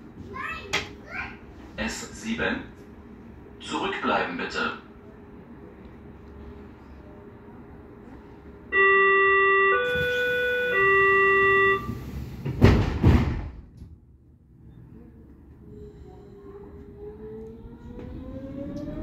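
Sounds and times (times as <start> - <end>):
electronic warning tones: 8.8 - 12.0
train doors thudding shut: 9.8 - 13.9.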